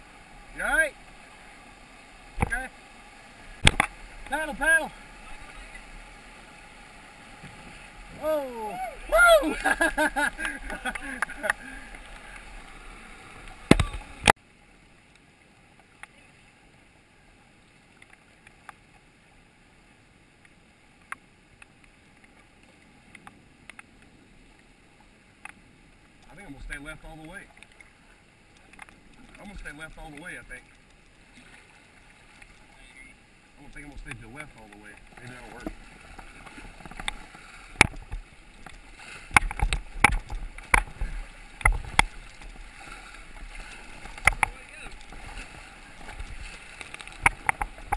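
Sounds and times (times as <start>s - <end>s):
rush of rapids: 0.0s - 17.7s, 31.2s - 47.9s
paddle drips and splashes: 0.0s - 47.9s
paddle knocks and splashes: 3.6s - 4.8s, 13.5s - 14.3s, 34.0s - 47.9s.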